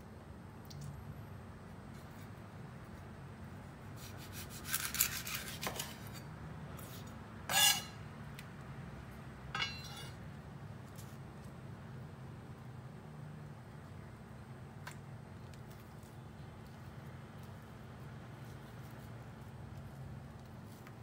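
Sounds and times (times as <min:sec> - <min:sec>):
knife scraping fruit skin: 0:03.9 - 0:08.0
knife cutting on wooden board: 0:04.0 - 0:06.2
steady low hum: 0:06.0 - 0:21.0.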